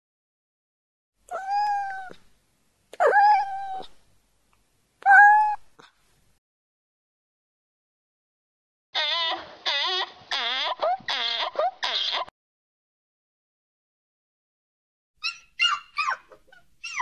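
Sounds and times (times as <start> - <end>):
kitten meowing: 1.3 - 2.2, 3.0 - 4.0, 5.0 - 5.7.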